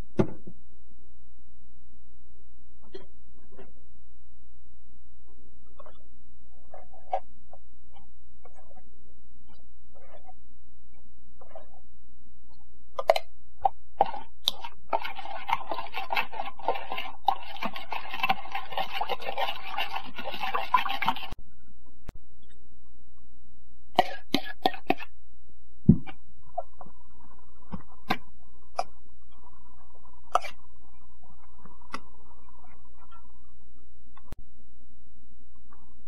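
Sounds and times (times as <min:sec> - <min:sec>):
steady low hum: 0:00.0 - 0:20.3, 0:21.3 - 0:36.0
spoon scraping against bowl: 0:14.0 - 0:21.4, 0:24.0 - 0:25.1, 0:30.3 - 0:30.6.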